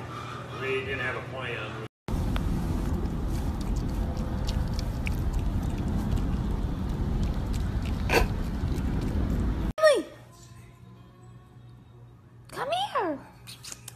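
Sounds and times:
steady low rumble: 0:02.1 - 0:09.7
raccoon eating: 0:02.8 - 0:09.6.

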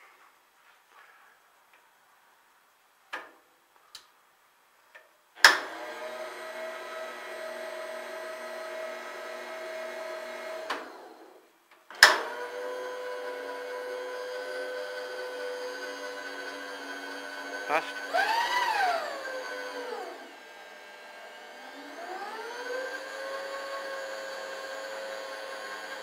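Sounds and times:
feed motor whining: 0:05.6 - 0:11.2, 0:12.0 - 0:26.0.

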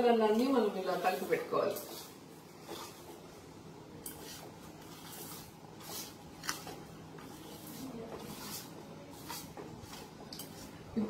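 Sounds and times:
hand mixing spice powder in bowl: 0:00.1 - 0:11.0
gritty rustling and scratching: 0:04.1 - 0:10.7.

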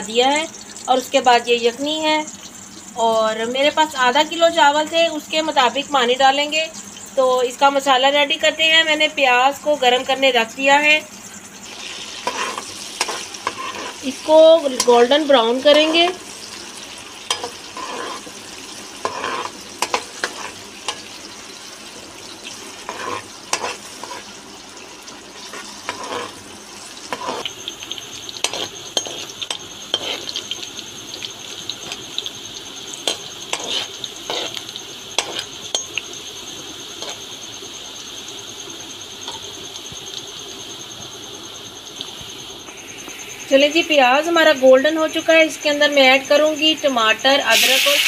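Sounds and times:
onions sizzling in hot oil: 0:00.0 - 0:48.0
metal spoon scraping a pan: 0:11.7 - 0:16.5, 0:17.2 - 0:21.2, 0:22.5 - 0:24.3, 0:25.4 - 0:26.4, 0:27.0 - 0:27.5, 0:28.4 - 0:30.6, 0:33.0 - 0:36.0, 0:37.0 - 0:37.2.

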